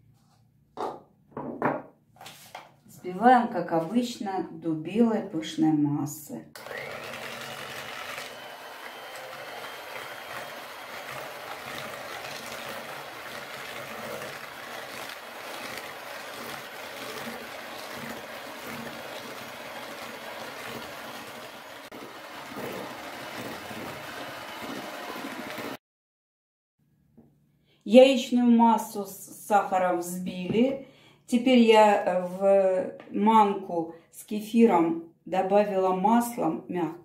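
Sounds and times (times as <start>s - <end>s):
electric hand mixer whipping: 6.6s - 25.8s.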